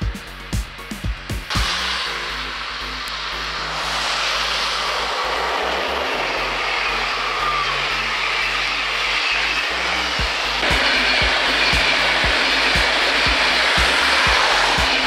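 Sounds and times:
train wheels rushing on rails: 0:00.0 - 0:15.0.

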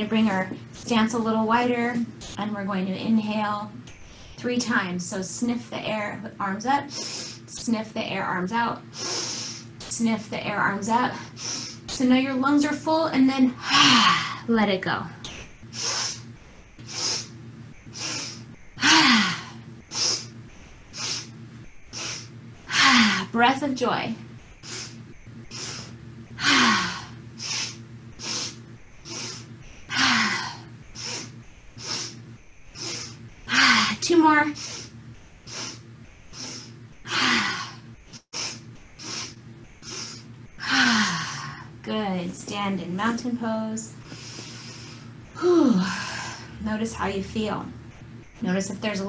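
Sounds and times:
woman sniffing inhales: 0:44.0 - 0:45.0.

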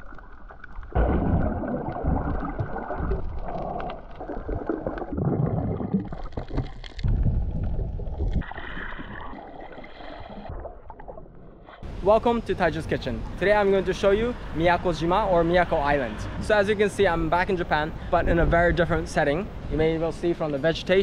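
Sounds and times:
muffled rushing water: 0:00.0 - 0:20.9
wind noise on microphone: 0:06.4 - 0:08.6, 0:18.0 - 0:20.0.

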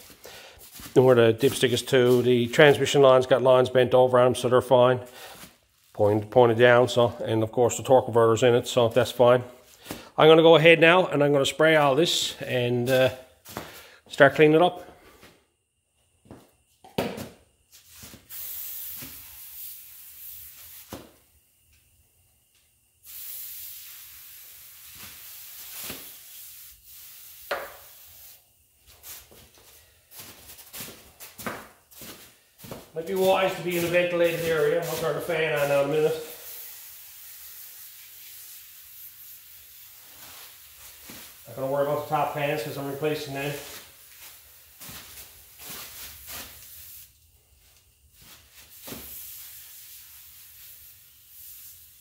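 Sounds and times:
aerosol can spraying: 0:17.9 - 0:21.2, 0:23.0 - 0:29.4, 0:32.7 - 0:47.2, 0:48.2 - 0:52.0.

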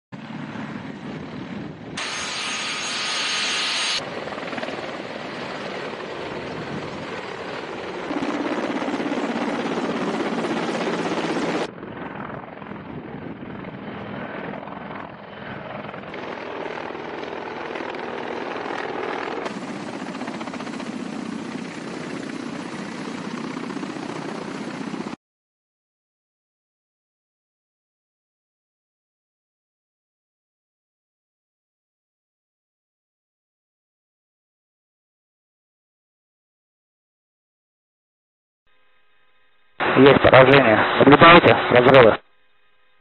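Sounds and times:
helicopter rotor chop: 0:00.2 - 0:25.2
high turbine whine: 0:00.2 - 0:25.2, 0:38.7 - 0:43.0.

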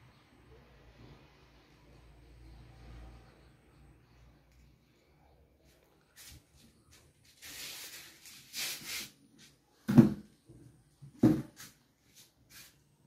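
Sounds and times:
rustling and brushing: 0:05.6 - 0:09.7, 0:11.4 - 0:13.0.

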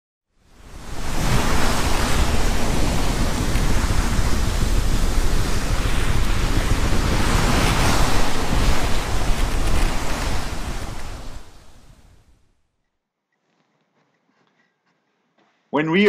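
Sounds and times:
sea water rushing along hull: 0:00.5 - 0:12.2
wind buffeting microphone: 0:00.5 - 0:12.4.

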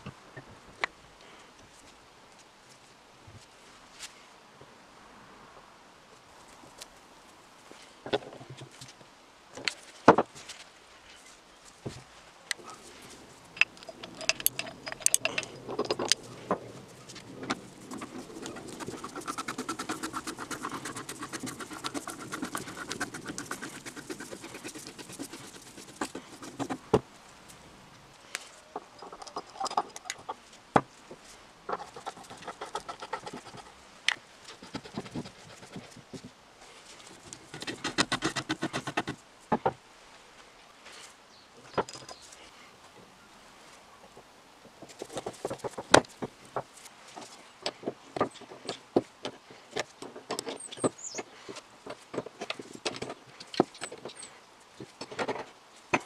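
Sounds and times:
breast drill parts clicking: 0:13.6 - 0:16.2
rapid fine clicking: 0:17.1 - 0:26.9.

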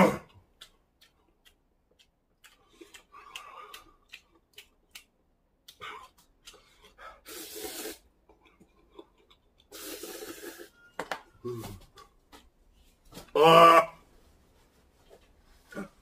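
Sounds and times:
person slurping noodles: 0:07.2 - 0:08.1, 0:09.7 - 0:10.7
short low grunt: 0:11.4 - 0:11.9.

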